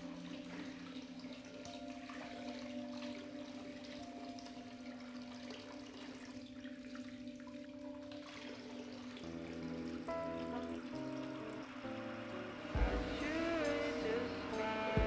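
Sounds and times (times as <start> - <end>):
music: 0.0 - 15.0
water rushing: 0.0 - 15.0
low steady hum: 8.7 - 15.0.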